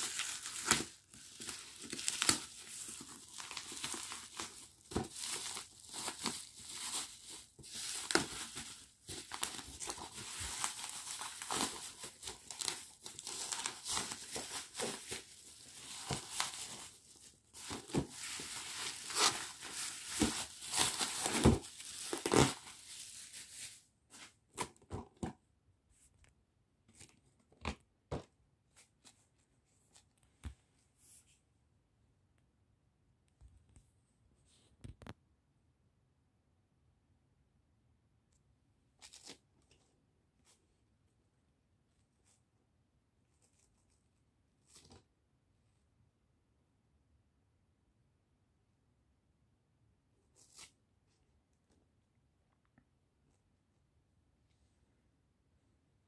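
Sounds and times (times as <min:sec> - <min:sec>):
bubble wrap crinkling: 0:00.0 - 0:24.7.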